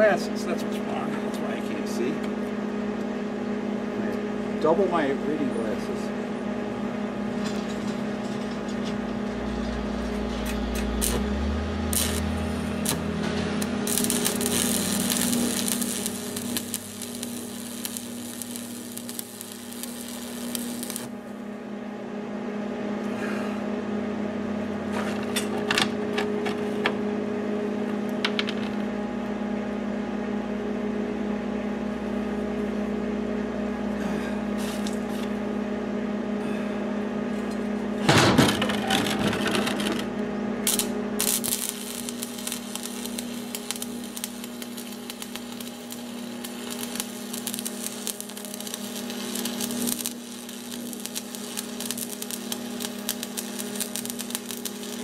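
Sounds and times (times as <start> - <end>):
steady hum: 0.0 - 55.0
welding arc crackling: 8.4 - 21.4, 38.5 - 55.0.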